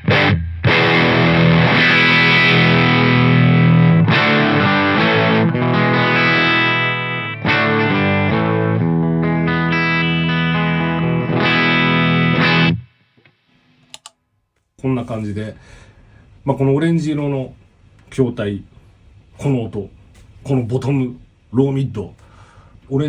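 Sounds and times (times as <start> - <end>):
overdriven electric guitar: 0.0 - 14.0
pedal footswitch click: 13.9 - 14.1.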